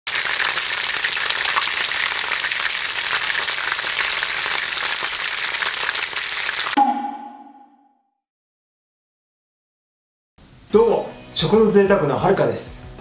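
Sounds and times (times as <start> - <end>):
chicken deep-frying in oil: 0.1 - 6.8.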